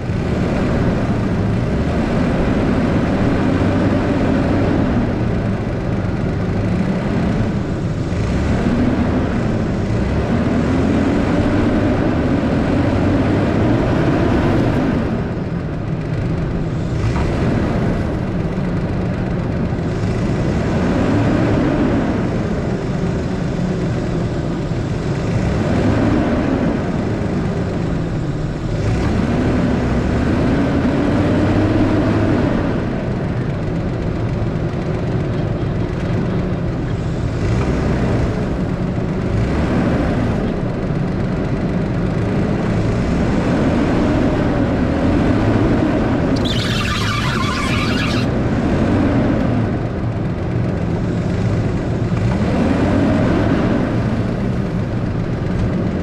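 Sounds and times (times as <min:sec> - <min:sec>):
pickup engine revving: 0:46.3 - 0:48.3.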